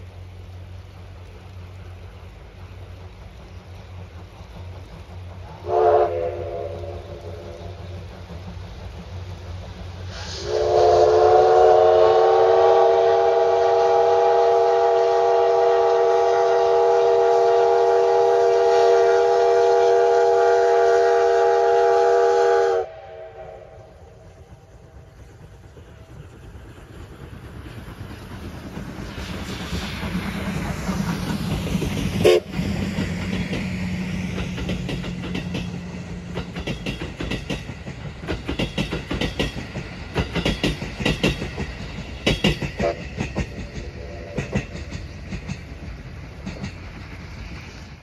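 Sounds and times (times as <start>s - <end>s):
train low rumble: 0.0s - 48.0s
steam locomotive whistle: 5.5s - 7.9s, 10.1s - 24.7s, 32.2s - 32.8s, 42.8s - 43.1s.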